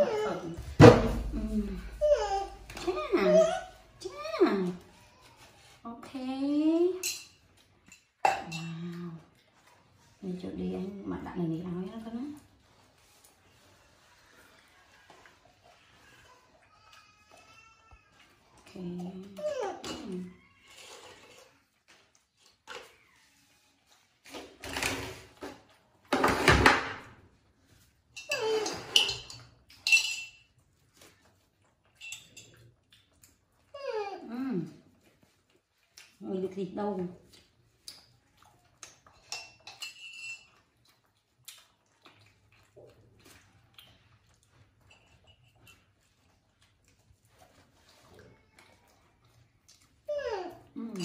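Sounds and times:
mug and bowl clinking: 7.0 - 8.8, 39.3 - 40.5.

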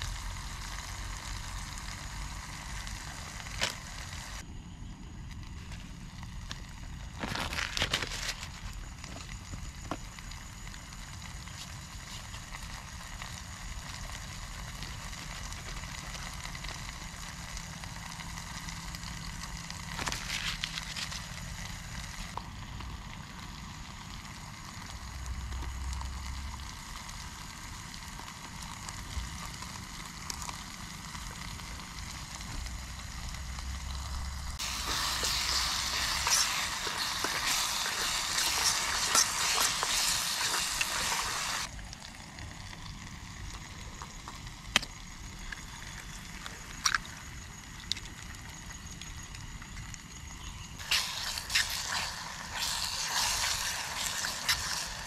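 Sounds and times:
curry sizzling in a pot: 0.0 - 4.5, 5.8 - 55.0
eggs cracking on a pot: 34.6 - 49.1.

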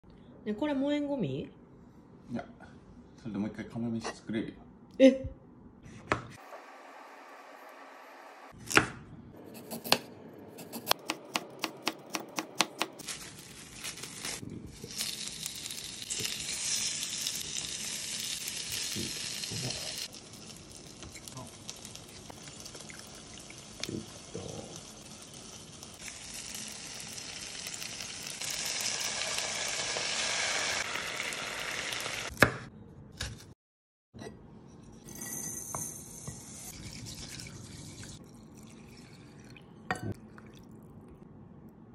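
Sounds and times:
knife chopping on wooden board: 6.0 - 6.4, 8.6 - 13.0
food sizzling in a pan: 13.0 - 32.3.

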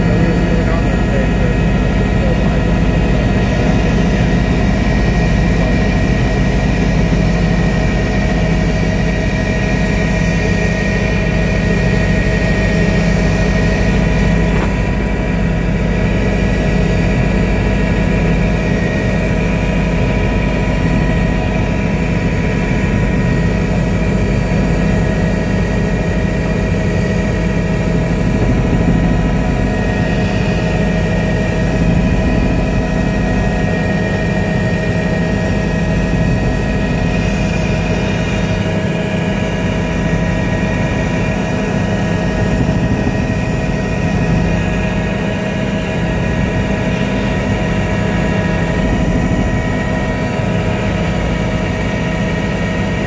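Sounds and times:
helicopter engine and rotor drone: 0.0 - 53.0
low rumble: 26.4 - 34.3.

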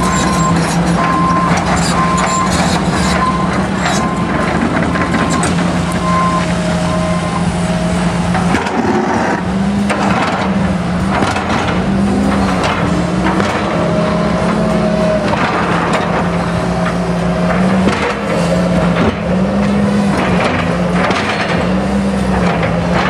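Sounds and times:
reversing alarm beeping: 0.0 - 4.5, 5.1 - 8.3
excavator diesel engine running: 0.0 - 23.0
lower-pitched alarm: 5.3 - 8.2.

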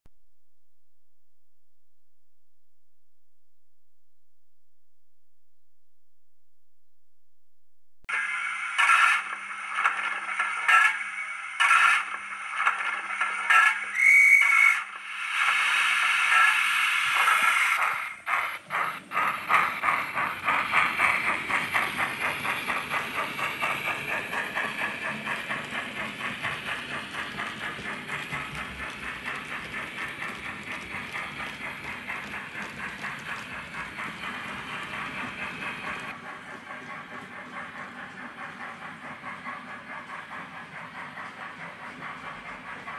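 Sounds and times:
steam hissing: 8.1 - 36.1
whistle toot: 13.9 - 14.9
locomotive exhaust chuffs: 17.1 - 42.9.

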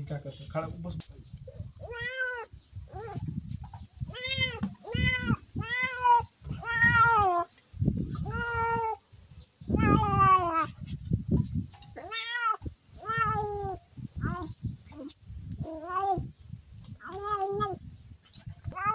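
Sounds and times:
cat meowing: 1.8 - 3.2, 4.1 - 7.5, 8.2 - 9.0, 12.0 - 16.3, 17.0 - 17.8, 18.7 - 18.9.

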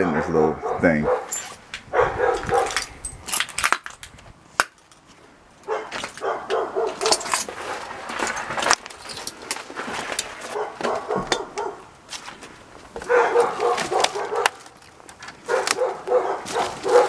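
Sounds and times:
dog barking: 0.0 - 1.3, 1.9 - 2.8, 5.7 - 7.3, 10.5 - 11.8, 13.0 - 14.6, 15.5 - 17.0
footsteps crunching over debris: 4.8 - 17.0.

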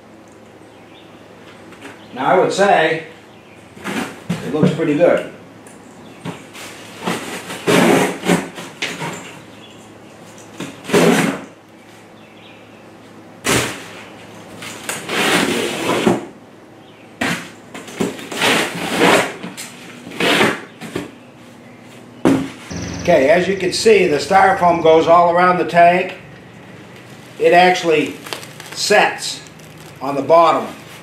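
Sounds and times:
sharp knock: 22.7 - 23.9.

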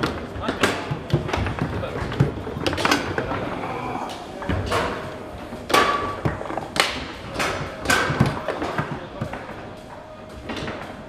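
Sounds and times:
foosball balls knocking and clacking: 0.0 - 3.6, 4.4 - 9.6.

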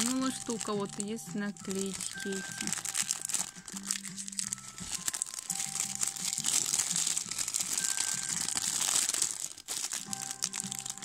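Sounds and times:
plastic packet crinkling: 0.0 - 11.0.

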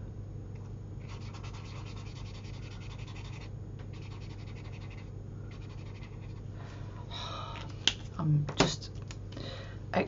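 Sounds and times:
paint pen scratching on paper: 1.0 - 6.4.

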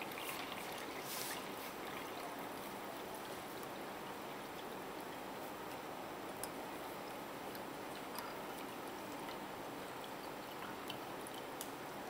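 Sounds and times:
liquid trickling into glass: 0.0 - 5.4, 7.0 - 11.9.

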